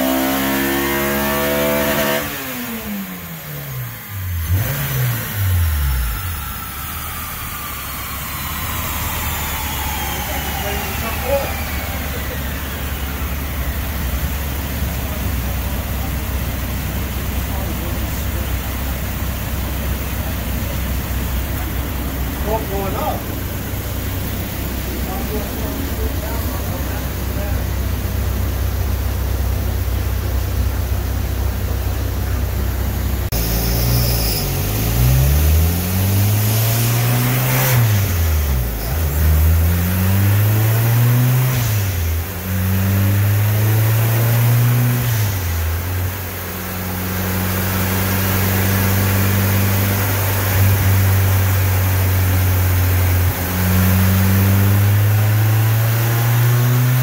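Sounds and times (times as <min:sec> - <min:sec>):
car engine revving: 0:00.0 - 0:57.0
steady low drone: 0:05.1 - 0:37.0.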